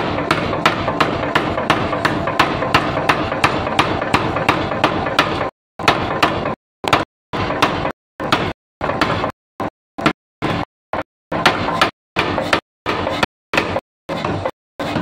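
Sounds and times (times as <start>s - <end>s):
power hammer striking steel: 0.0s - 9.4s.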